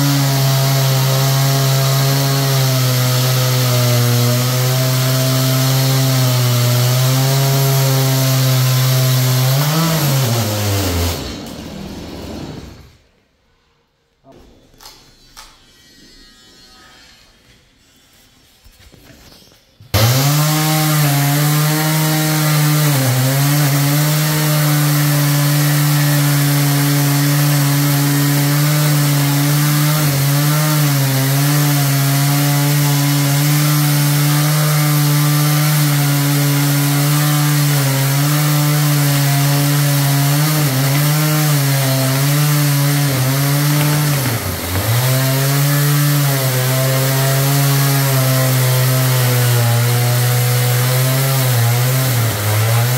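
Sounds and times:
chainsaw cutting wood: 0.0 - 13.0, 19.9 - 52.9.

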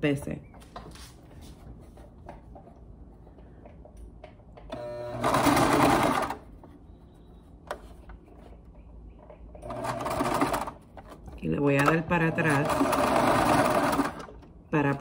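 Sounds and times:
sewing machine stitching: 4.7 - 6.4, 9.6 - 10.8, 11.7 - 15.0.

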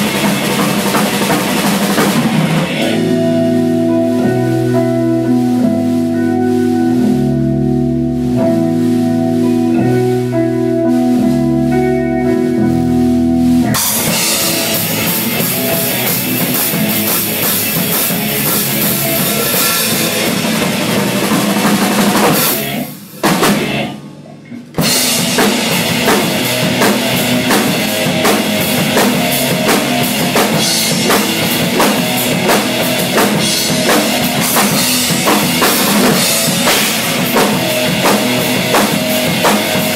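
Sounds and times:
rock band playing: 0.0 - 24.0, 24.6 - 39.9
drum kit: 0.0 - 39.9.

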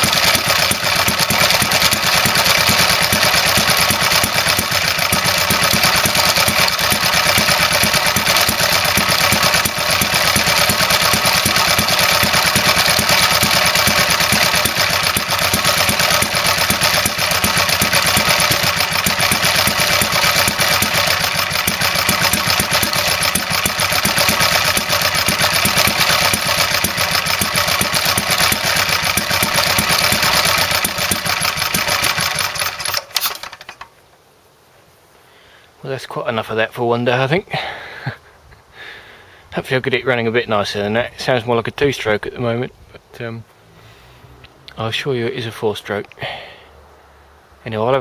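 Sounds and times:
stationary engine running roughly: 0.0 - 33.8.

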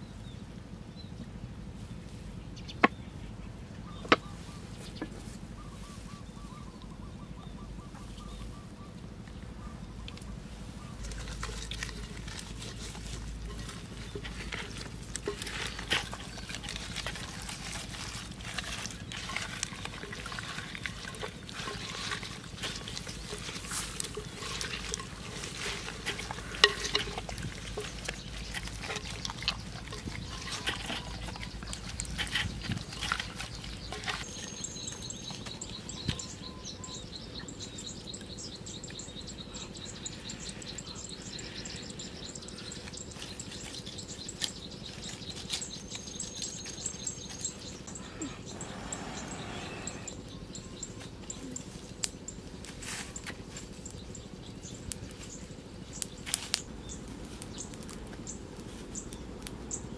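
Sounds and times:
wet squelching of hands packing: 11.0 - 36.2.

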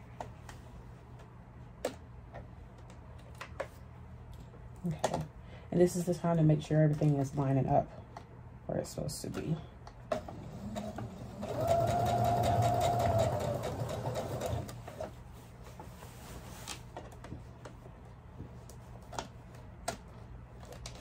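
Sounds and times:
sewing machine stitching: 10.2 - 15.1.

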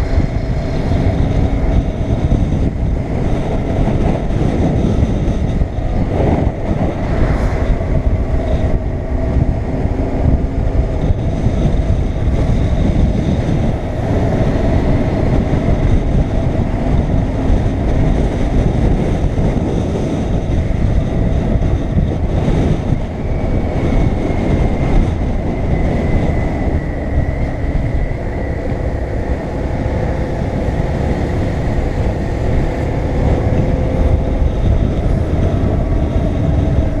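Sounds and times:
wind rush over microphone: 0.0 - 37.0.

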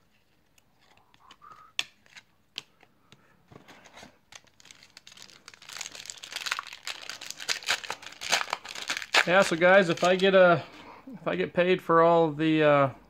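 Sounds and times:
foil wrapper crinkling: 4.3 - 10.4.

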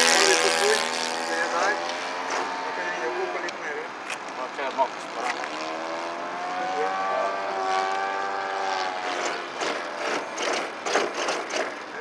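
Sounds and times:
model plane motor and propeller: 0.0 - 2.5, 8.7 - 12.0.

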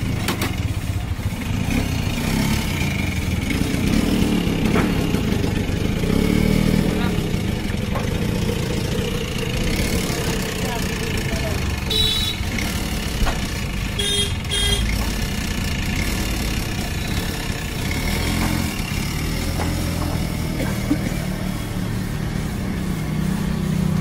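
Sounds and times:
road traffic: 0.0 - 24.0
vehicle horn toots: 11.8 - 12.6, 13.9 - 15.0.

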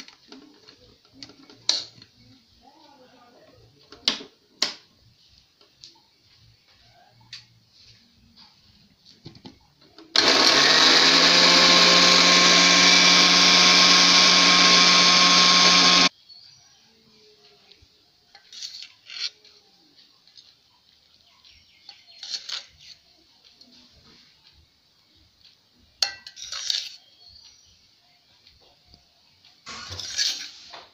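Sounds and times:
blender motor running: 10.2 - 16.1, 29.7 - 30.2.

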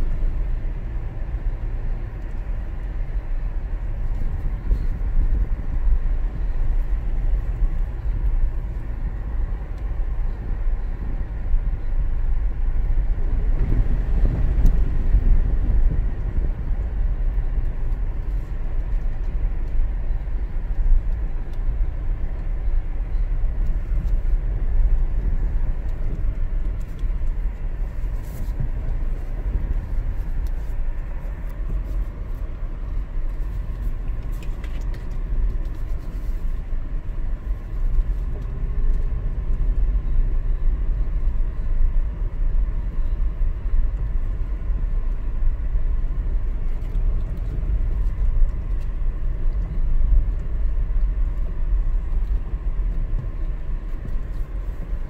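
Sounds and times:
car engine low rumble: 0.0 - 55.0
light ticks and rattles: 3.8 - 55.0.

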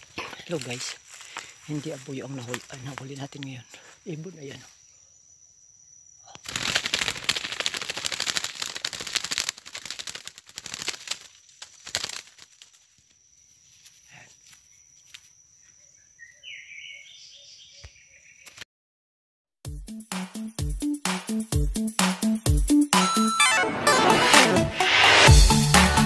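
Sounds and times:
dove wings flapping: 6.4 - 12.8.

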